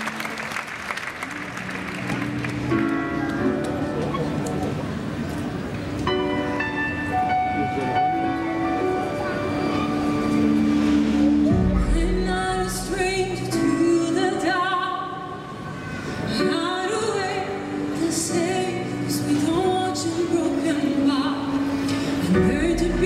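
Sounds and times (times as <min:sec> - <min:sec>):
backing music: 0:05.9 - 0:14.7
woman singing with vibrato: 0:11.8 - 0:15.6, 0:16.3 - 0:23.0.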